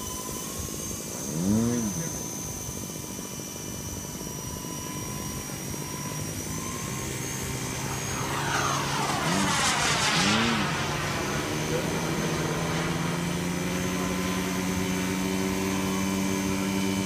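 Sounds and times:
toy helicopter motor whine: 0.0s - 17.0s
sweeping whoosh: 6.1s - 16.4s.

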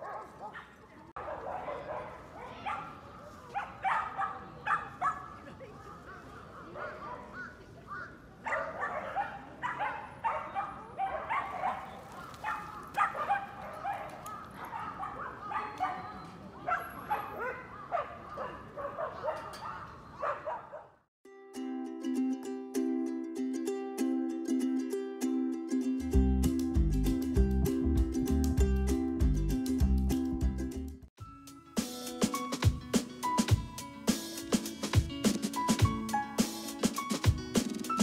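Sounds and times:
dogs barking and yipping: 0.0s - 7.6s, 8.4s - 21.0s
background music: 25.9s - 38.0s.

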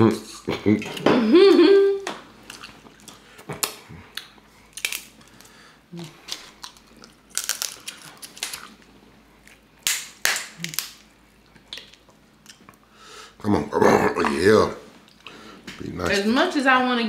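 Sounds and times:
crab shells cracking: 2.4s - 12.8s.

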